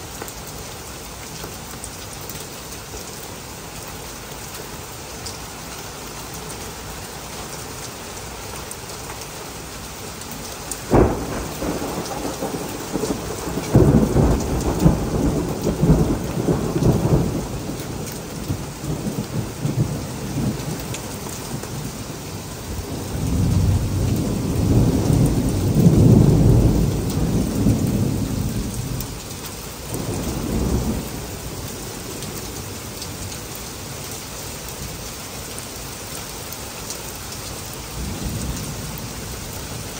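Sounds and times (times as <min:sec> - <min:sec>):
heavy rain: 0:00.0 - 0:39.9
rolling thunder rumbles: 0:10.8 - 0:33.3, 0:38.0 - 0:39.9
thunderclap: 0:10.9 - 0:20.8.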